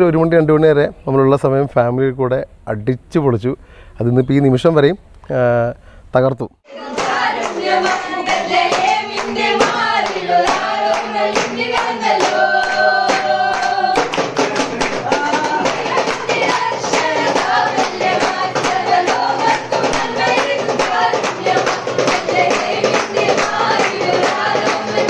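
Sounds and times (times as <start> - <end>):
children singing a carol: 6.7 - 14.2, 15.0 - 25.0
steady beat: 6.7 - 25.0.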